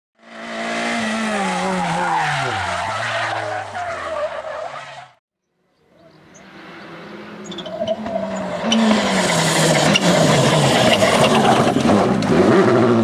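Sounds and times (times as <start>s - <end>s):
race car engine: 0.2s - 5.2s, 5.8s - 13.0s
tyres skidding: 0.3s - 5.2s, 6.0s - 13.0s
rally car engine approaching: 5.8s - 13.0s.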